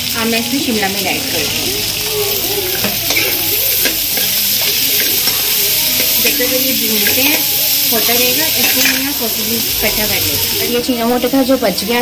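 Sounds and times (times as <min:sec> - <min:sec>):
vegetables sizzling in hot oil: 0:00.0 - 0:12.0
spatula scraping and tapping pan: 0:02.8 - 0:09.2.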